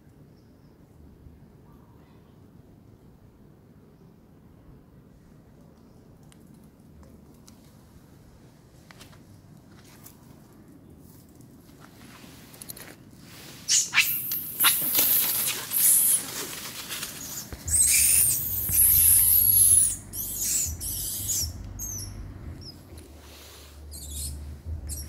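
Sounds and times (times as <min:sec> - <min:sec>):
rustling: 0:08.8 - 0:21.0, 0:21.6 - 0:25.0
monkey squeaking and squealing: 0:13.7 - 0:22.8, 0:23.8 - 0:25.0
low microphone rumble: 0:16.9 - 0:25.0.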